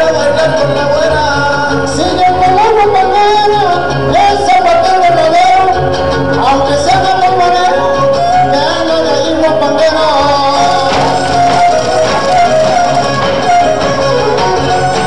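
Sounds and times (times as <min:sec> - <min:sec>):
person singing: 0:00.0 - 0:15.0
violin and guitars playing: 0:00.0 - 0:15.0.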